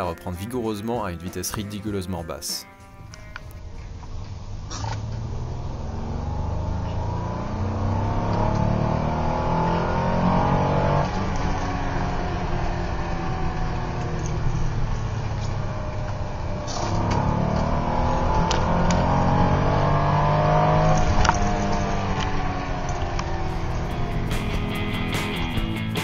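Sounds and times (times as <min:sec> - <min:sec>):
car engine accelerating: 0:03.1 - 0:26.0.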